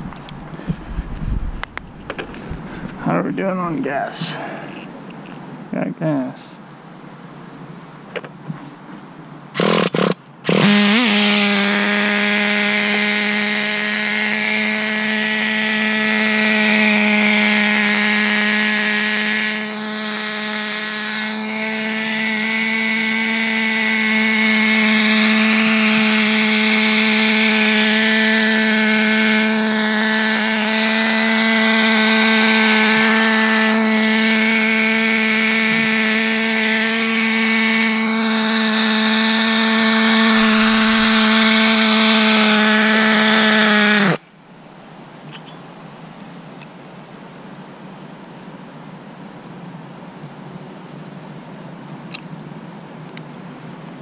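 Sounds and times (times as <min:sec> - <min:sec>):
nitro engine running: 0:09.6 - 0:44.3.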